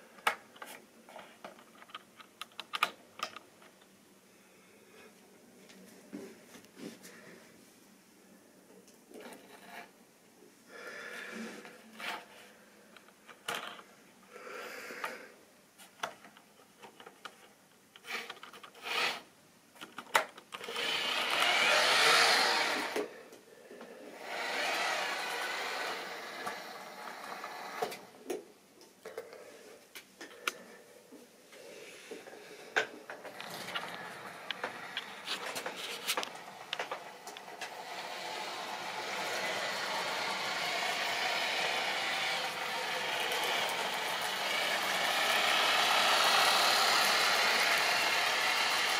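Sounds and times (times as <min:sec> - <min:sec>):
clicks and knocks of handling: 0:00.2 - 0:03.9
small electric motor whirring: 0:18.1 - 0:19.2, 0:20.6 - 0:23.1, 0:24.2 - 0:28.1, 0:33.3 - 0:48.9.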